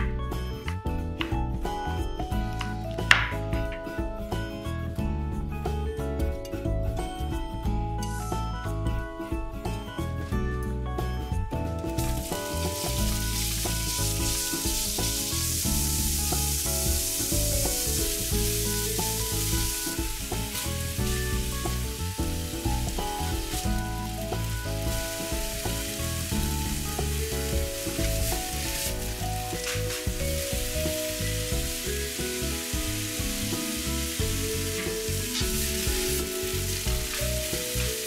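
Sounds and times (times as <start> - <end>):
food sizzling in a frying pan: 11.9 - 38.0.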